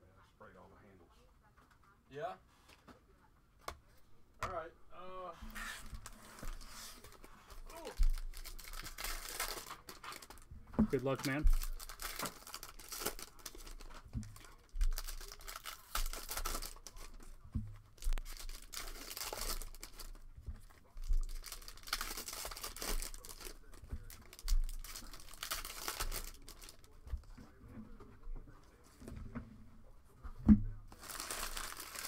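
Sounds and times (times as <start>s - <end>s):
foil wrappers tearing and crinkling: 6.0s - 17.4s, 18.0s - 20.2s, 20.8s - 27.0s, 30.9s - 32.0s.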